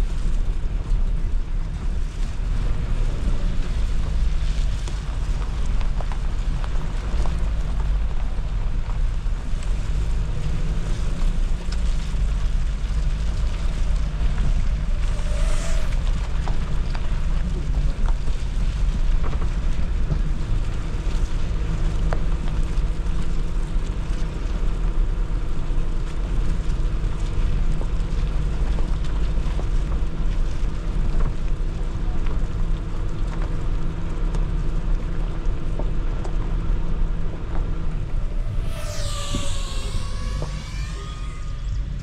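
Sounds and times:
engine and tyres rumbling: 0:00.0 - 0:42.0
wind noise: 0:13.6 - 0:18.8
falling pitch sound: 0:14.7 - 0:16.8, 0:37.9 - 0:42.0.

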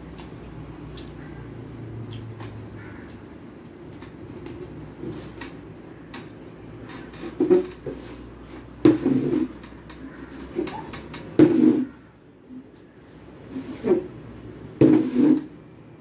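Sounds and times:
chewing: 0:00.0 - 0:05.6.

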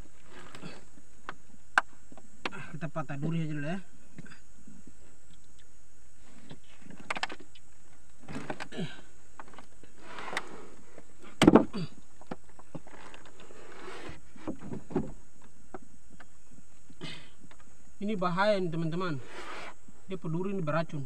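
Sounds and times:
knocks against wooden canoe: 0:11.4 - 0:11.7.

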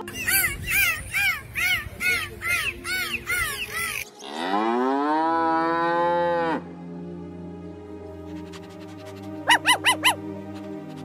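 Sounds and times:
dolphin squeaky chirps: 0:00.0 - 0:04.0, 0:09.5 - 0:10.2
cow mooing: 0:04.2 - 0:06.6.

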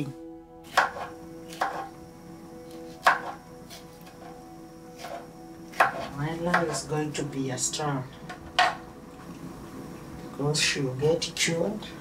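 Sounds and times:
knife chopping on wooden board: 0:00.7 - 0:01.9, 0:03.0 - 0:03.4, 0:05.0 - 0:06.8.

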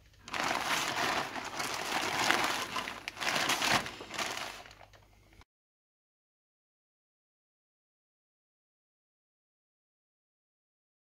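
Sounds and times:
plastic mailer bag crinkling: 0:00.2 - 0:05.1.

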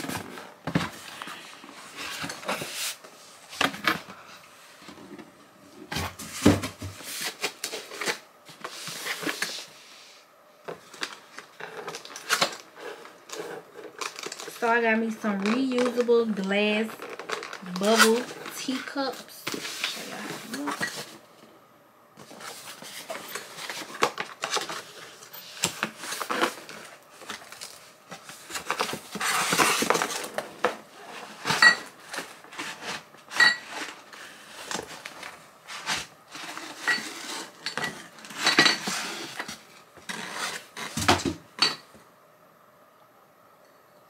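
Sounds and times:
packaging rustling: 0:10.8 - 0:21.2, 0:22.2 - 0:41.3.

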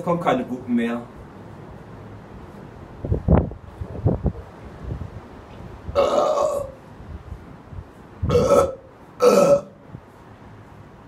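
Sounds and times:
man burping: 0:06.0 - 0:06.8, 0:08.3 - 0:09.8.

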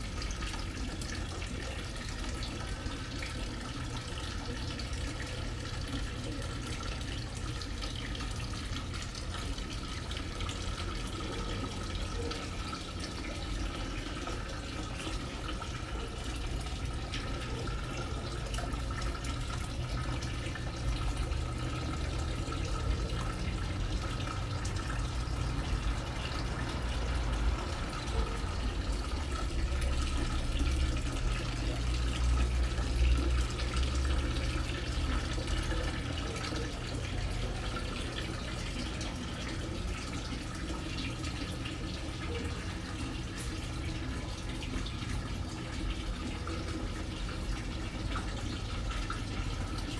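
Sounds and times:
fountain water trickling: 0:00.0 - 0:49.9.

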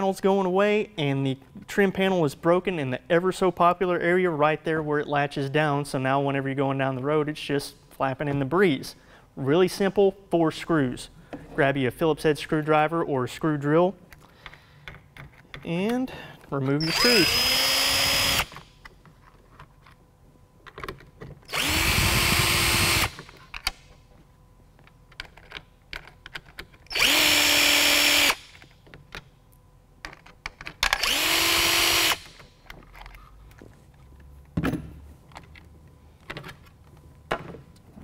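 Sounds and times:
cordless drill motor whine: 0:16.8 - 0:18.7, 0:21.5 - 0:23.4, 0:26.9 - 0:28.6, 0:31.0 - 0:32.5
clicks of handling plastic parts: 0:24.8 - 0:26.9, 0:30.0 - 0:31.0, 0:32.4 - 0:37.9.

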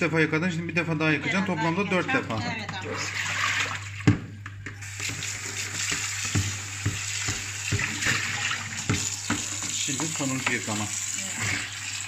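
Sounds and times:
tap water running into a bowl: 0:03.0 - 0:12.0.

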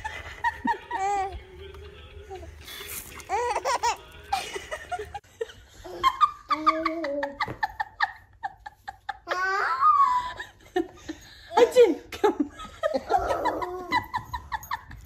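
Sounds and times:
baby laughing: 0:00.0 - 0:01.4, 0:03.1 - 0:05.2, 0:13.0 - 0:14.3
people laughing: 0:00.0 - 0:01.4, 0:03.3 - 0:09.3, 0:10.0 - 0:15.0.

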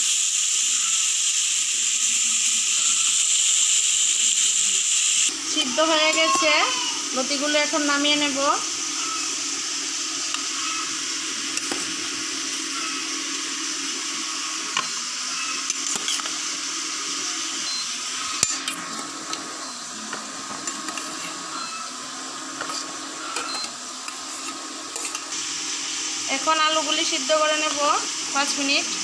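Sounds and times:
fish sizzling in oil: 0:00.0 - 0:29.0
metal spoon scraping ceramic plate: 0:15.6 - 0:16.3, 0:22.6 - 0:25.3.

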